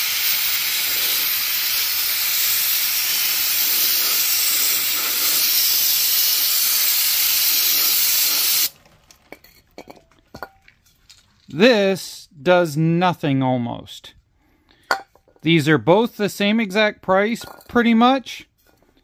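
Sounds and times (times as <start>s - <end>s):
aerosol spray hissing: 0.0s - 8.7s.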